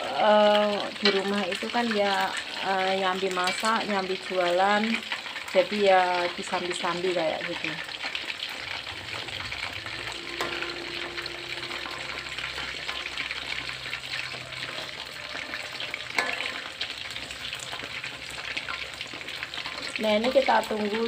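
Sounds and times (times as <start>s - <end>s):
chicken frying in hot oil: 0.0s - 21.0s
metal spatula knocking on wok: 16.1s - 16.7s.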